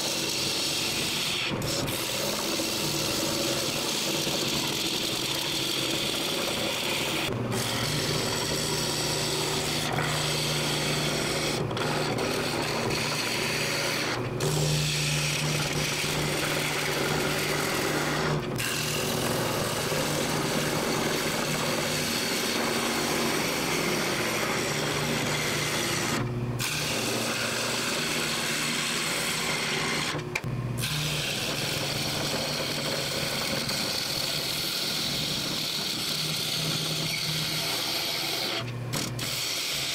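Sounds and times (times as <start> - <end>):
chisel scraping spinning wood: 0.0 - 39.9
lathe humming: 0.0 - 39.9.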